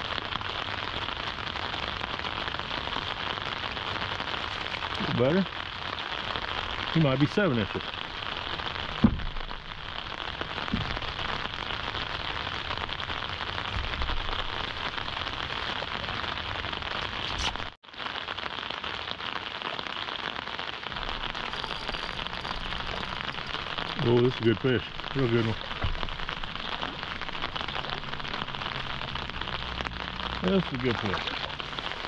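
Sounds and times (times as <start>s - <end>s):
steady rain: 0.0s - 32.0s.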